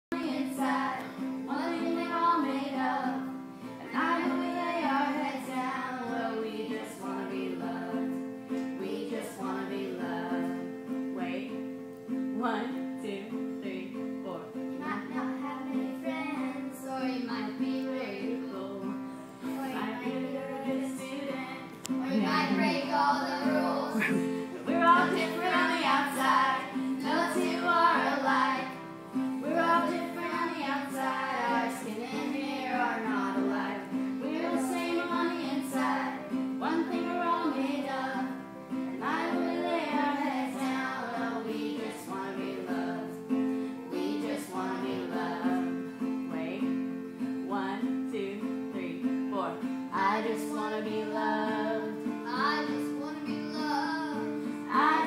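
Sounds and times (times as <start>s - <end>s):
acoustic guitar: 0.0s - 55.0s
children singing: 0.1s - 10.8s, 19.4s - 46.0s, 50.0s - 55.0s.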